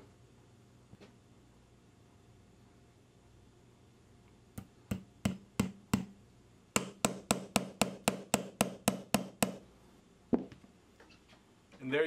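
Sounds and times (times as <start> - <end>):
hammer tapping pin punch: 4.6 - 6.2, 6.8 - 9.6.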